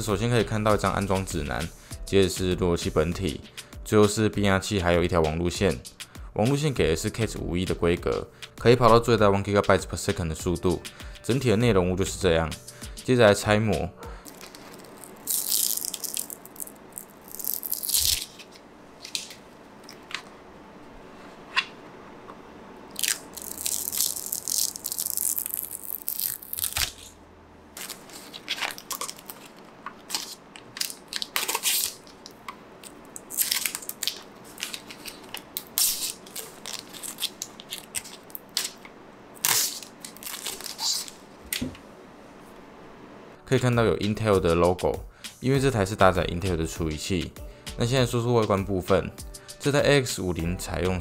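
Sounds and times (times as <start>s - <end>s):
plastic film crackling: 14.2s - 20.2s, 22.9s - 27.2s, 27.8s - 41.6s.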